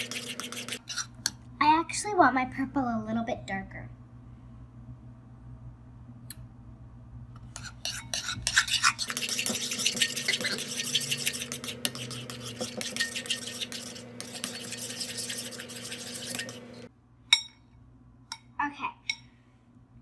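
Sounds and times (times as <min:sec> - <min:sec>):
spoon stirring slime in a bowl: 0:00.0 - 0:01.4, 0:07.4 - 0:17.6.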